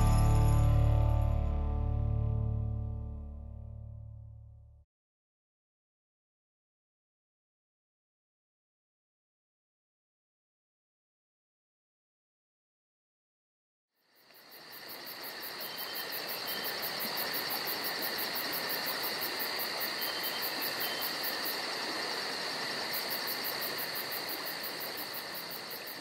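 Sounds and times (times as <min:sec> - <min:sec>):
crickets chirping: 0:14.0 - 0:26.0.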